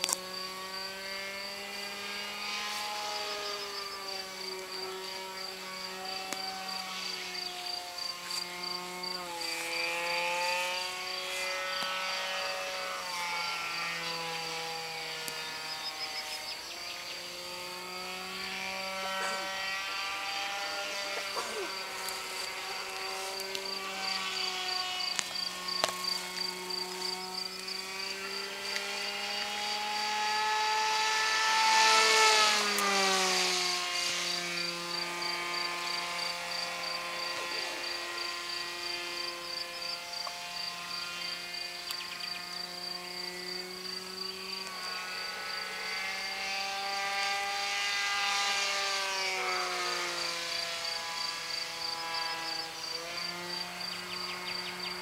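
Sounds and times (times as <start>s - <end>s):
model jet whine passing overhead: 0.0s - 55.0s.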